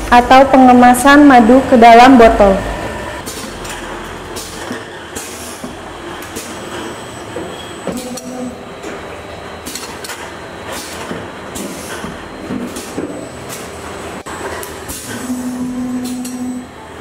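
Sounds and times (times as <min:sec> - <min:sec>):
pneumatic cylinder hisses and clacks: 0:04.4 - 0:06.9, 0:09.6 - 0:13.6, 0:14.8 - 0:15.4.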